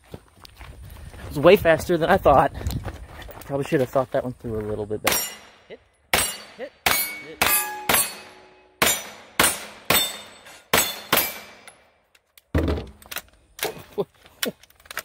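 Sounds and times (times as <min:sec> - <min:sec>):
gunshots: 0:05.1 - 0:11.7
steel targets ringing: 0:05.1 - 0:11.8
gun set down with knocks: 0:12.4 - 0:13.8.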